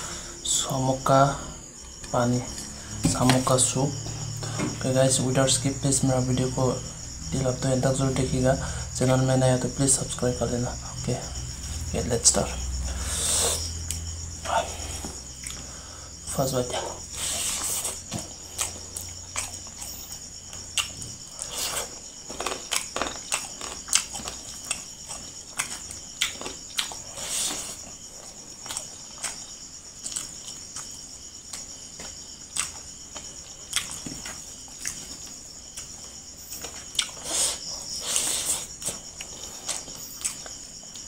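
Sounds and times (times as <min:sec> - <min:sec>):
man chewing wetly: 0:17.6 - 0:41.0.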